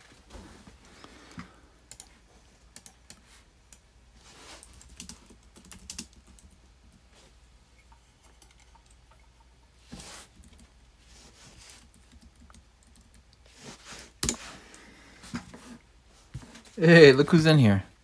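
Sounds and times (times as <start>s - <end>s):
typing on computer keyboard: 1.9s - 2.1s, 2.7s - 3.8s, 4.6s - 6.6s, 11.8s - 13.4s.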